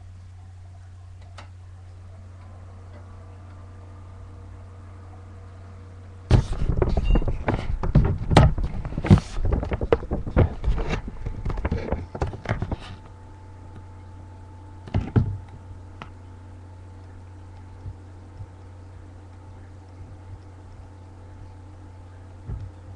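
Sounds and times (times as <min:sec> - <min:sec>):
steady low hum: 0:00.0 - 0:22.9
camera handling knocks and rubbing: 0:06.3 - 0:13.0.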